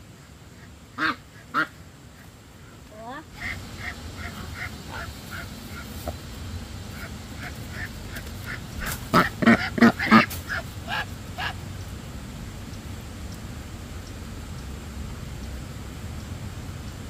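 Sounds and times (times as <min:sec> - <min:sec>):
ducks quacking: 0:00.0 - 0:12.1.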